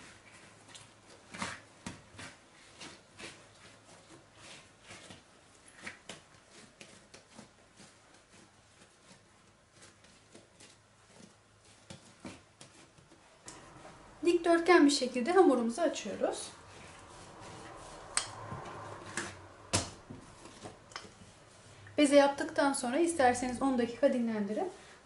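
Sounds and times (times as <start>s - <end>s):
dough patting against a mat: 0.0s - 14.0s.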